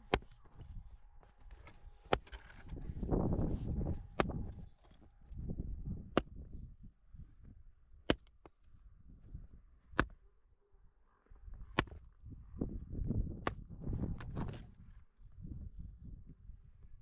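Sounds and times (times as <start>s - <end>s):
axe chopping: 0.0s - 0.4s, 1.6s - 2.7s, 4.2s - 5.0s, 6.2s - 6.4s, 8.1s - 8.5s, 10.0s - 10.2s, 11.8s - 12.0s, 13.4s - 13.6s.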